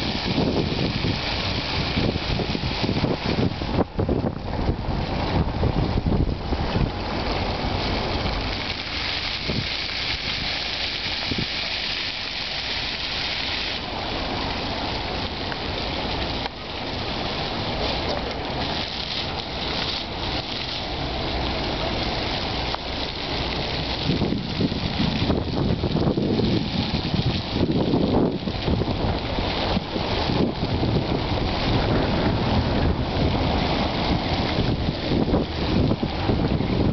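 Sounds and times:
fountain water splashing into metal trough: 0.0s - 36.9s
wind rumble on microphone: 0.0s - 36.9s.

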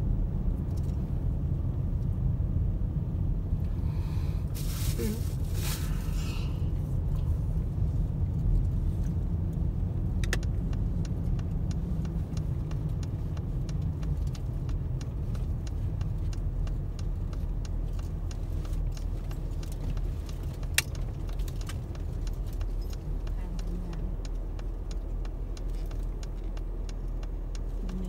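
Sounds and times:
vehicle rumble: 0.0s - 28.0s
light clicks and ticks: 8.2s - 28.0s.

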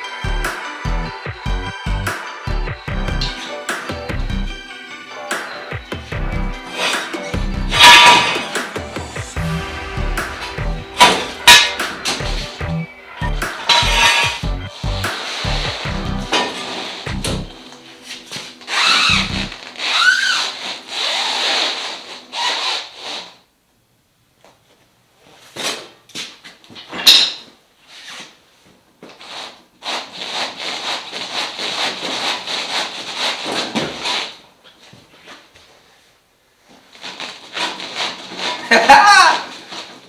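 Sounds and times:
knocks and scrapes of metal kart: 6.7s - 8.7s, 11.0s - 12.3s, 13.2s - 15.6s, 16.2s - 17.5s, 37.2s - 38.9s.

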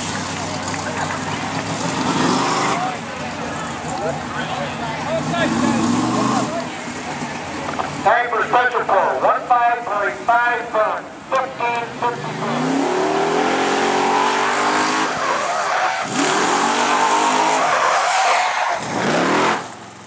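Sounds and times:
truck engine accelerating: 0.0s - 8.9s, 9.8s - 20.0s
tire squeal: 12.9s - 19.7s.

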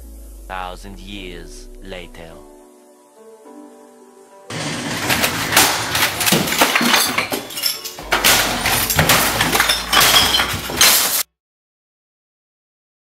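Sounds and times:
bottles and glass clinking: 4.5s - 11.2s
keyboard and desk smashing: 4.5s - 11.3s.

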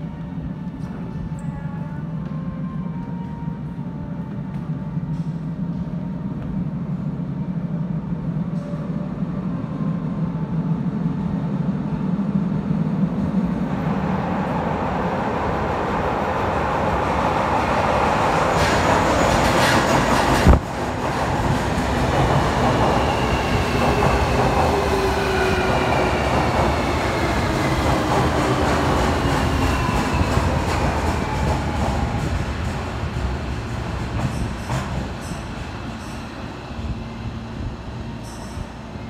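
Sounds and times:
train wheels rumbling on rails: 12.0s - 39.0s.

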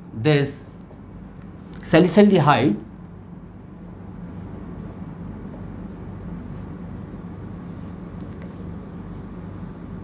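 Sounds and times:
marker writing on whiteboard: 3.5s - 8.4s, 9.1s - 9.8s.

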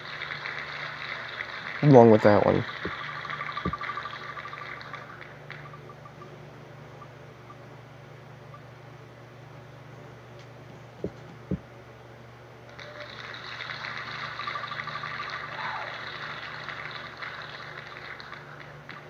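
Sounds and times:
recorded applause: 0.0s - 5.7s, 12.7s - 19.0s
soft thumps: 11.0s - 11.7s.

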